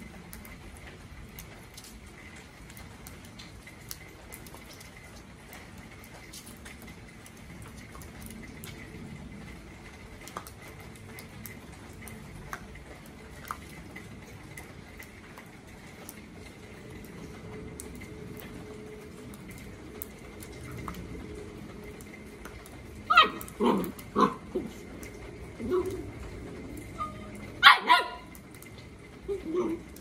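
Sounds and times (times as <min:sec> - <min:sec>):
rain dripping on wet concrete: 0:00.0 - 0:30.0
puppy barking: 0:23.1 - 0:24.6, 0:27.0 - 0:28.4.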